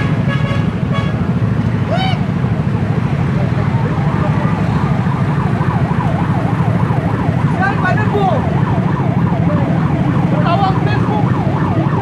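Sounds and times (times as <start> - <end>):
traffic engines rumbling: 0.0 - 12.0
emergency siren wailing: 3.7 - 12.0.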